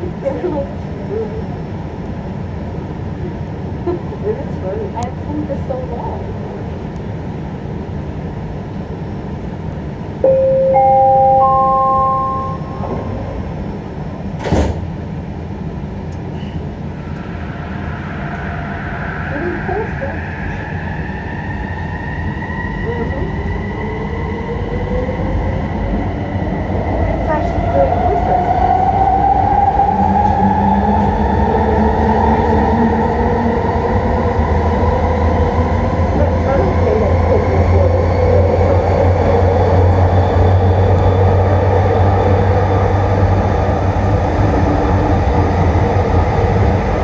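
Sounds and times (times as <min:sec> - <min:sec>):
low train hum: 0:00.0 - 0:47.0
three-tone door chime: 0:10.2 - 0:12.9
sliding doors closing: 0:14.3 - 0:15.0.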